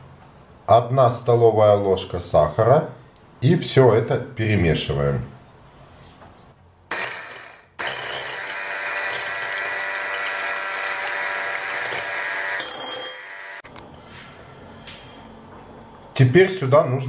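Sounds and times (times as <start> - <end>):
electric hand mixer whirring: 6.9 - 13.7.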